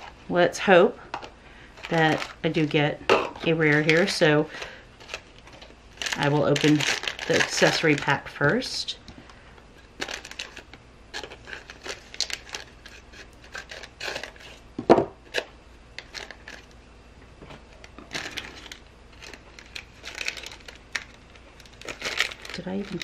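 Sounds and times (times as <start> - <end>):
foil pouch crackling: 1.8 - 2.8, 3.5 - 8.6, 9.9 - 14.4, 18.0 - 23.0.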